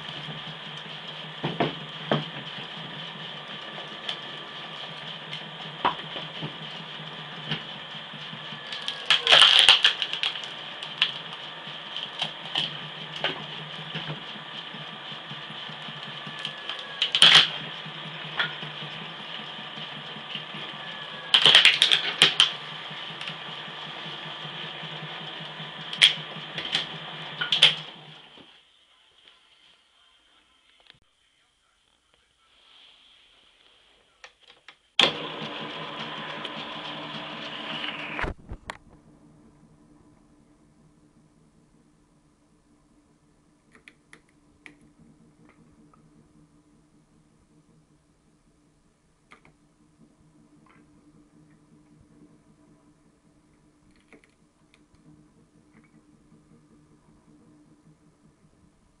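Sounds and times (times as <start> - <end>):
electric motor humming and whining: 0.0 - 28.5, 35.0 - 39.8
wood cracking and splitting: 8.6 - 13.4, 16.3 - 17.5, 21.3 - 22.6.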